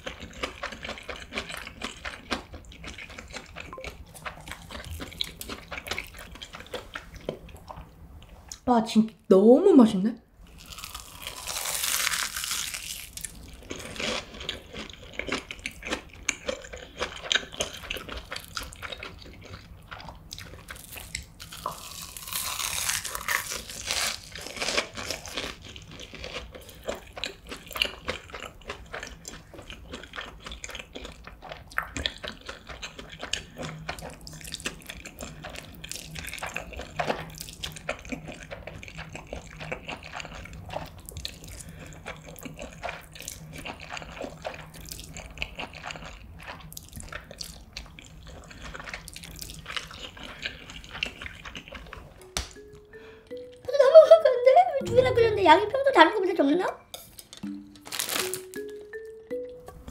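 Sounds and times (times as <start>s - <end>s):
wet chewing: 0.0s - 8.6s, 10.5s - 53.6s
crisp crunching of fried food: 10.5s - 52.2s, 57.2s - 58.8s.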